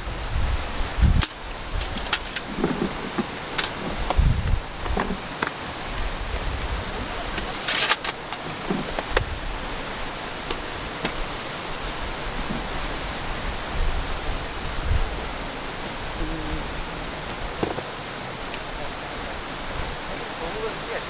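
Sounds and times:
rushing outdoor noise: 0:00.0 - 0:21.0
light clicks of items: 0:01.2 - 0:04.2, 0:07.3 - 0:09.3
plastic and paper rustle: 0:01.3 - 0:04.0, 0:07.3 - 0:09.2.

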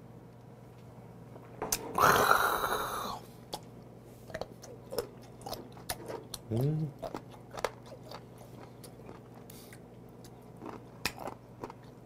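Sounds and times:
man exhaling loudly: 0:02.0 - 0:03.2
chewing clicks: 0:04.3 - 0:12.0.

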